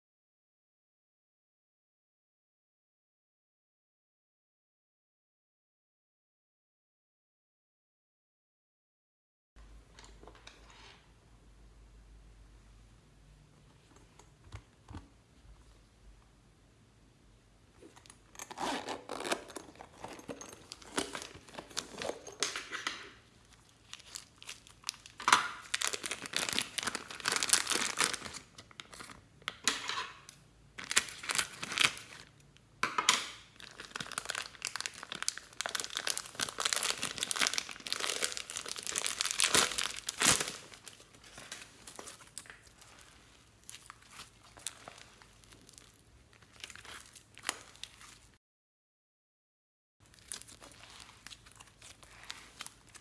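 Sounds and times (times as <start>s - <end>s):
zipper pulled open: 17.8s - 22.4s
plastic bag crinkling: 17.8s - 29.1s, 30.8s - 32.3s, 33.6s - 48.4s, 50.0s - 53.0s
soft slime handling: 38.0s - 48.4s, 50.1s - 53.0s.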